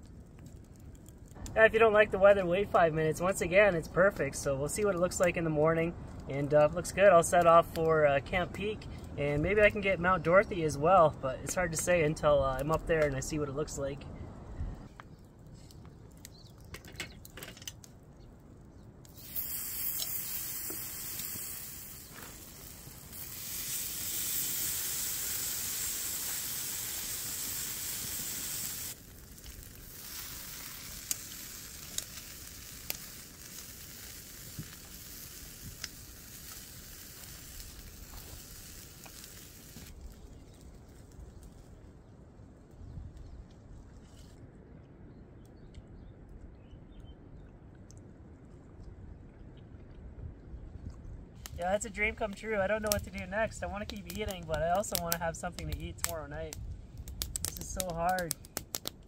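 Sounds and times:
sharp crackles: 0.0 - 44.5, 50.8 - 59.0
meat sizzling on a grill: 19.1 - 40.9.

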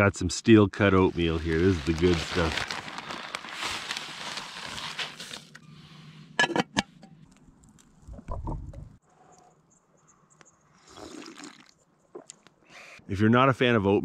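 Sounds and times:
rustling pour: 1.0 - 5.6.

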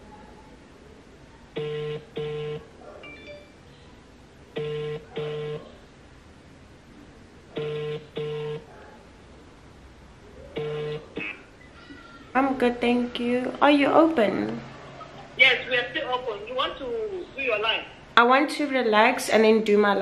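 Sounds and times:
phone ringback tone: 1.6 - 3.6, 4.6 - 5.6, 7.6 - 8.6, 10.6 - 11.0.

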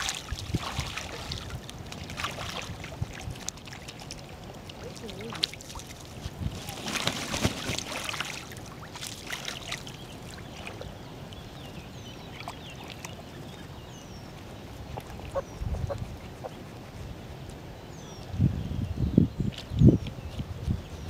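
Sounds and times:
goose splashing with wings: 0.0 - 10.9
waterfowl dabbling splashes: 0.0 - 11.4, 12.1 - 13.7.

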